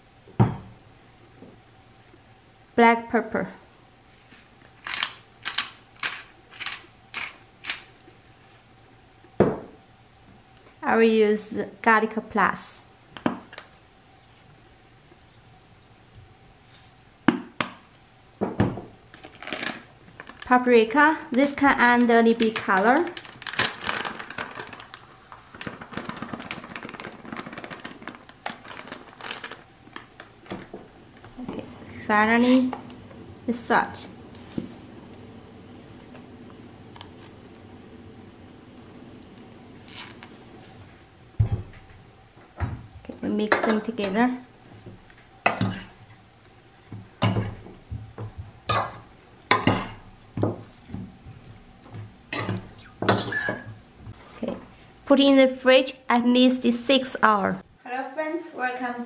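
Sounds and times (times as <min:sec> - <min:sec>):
plastic bag crinkling and tapping: 0:19.1 - 0:20.6, 0:21.4 - 0:31.6.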